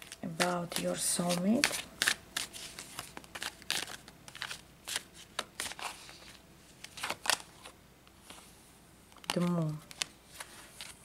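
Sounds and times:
cards shuffling and slapping: 0.0s - 8.4s, 9.1s - 11.0s.

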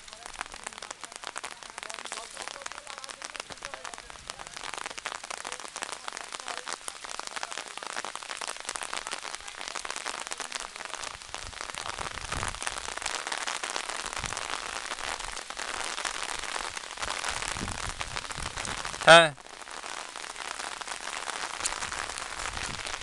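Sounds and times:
rain falling: 0.0s - 23.0s.

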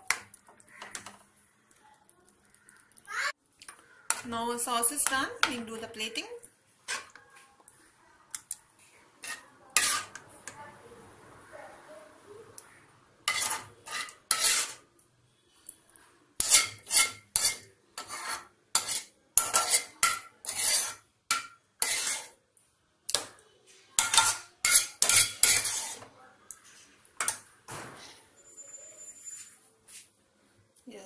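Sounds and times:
metal spoon scraping metal pan: 9.2s - 10.4s, 13.2s - 14.9s, 16.4s - 22.4s, 24.0s - 26.1s.

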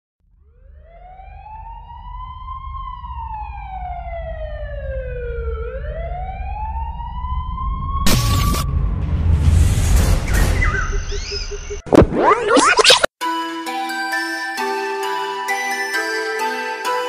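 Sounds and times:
slow wailing siren: 0.2s - 9.1s
low rumble: 0.2s - 11.9s
loud burst of noise: 8.0s - 12.3s.

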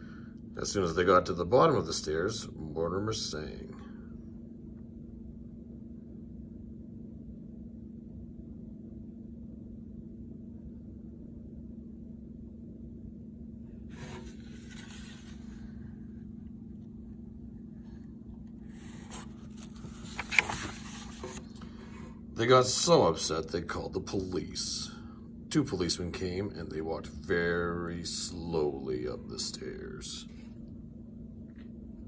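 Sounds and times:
low hum: 0.0s - 32.0s
book page rustling: 13.9s - 15.7s, 18.4s - 22.0s.

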